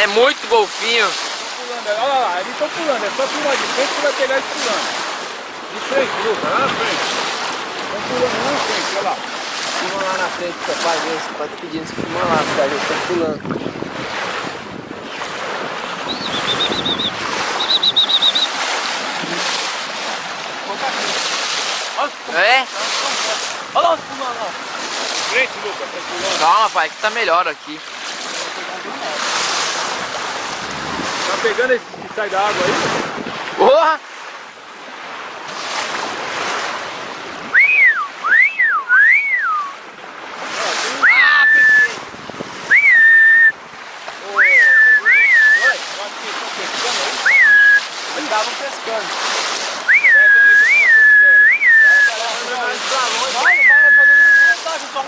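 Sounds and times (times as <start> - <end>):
sea water rushing around boat: 0.0 - 55.0
wind: 0.0 - 55.0
wind noise on microphone: 11.7 - 19.6, 29.0 - 33.7, 35.5 - 45.8
person whistling: 16.1 - 18.5, 37.5 - 39.8, 41.0 - 42.0, 42.7 - 43.6, 44.4 - 45.8, 47.2 - 47.9, 49.9 - 52.2, 53.4 - 54.6
high chirps: 16.1 - 18.6.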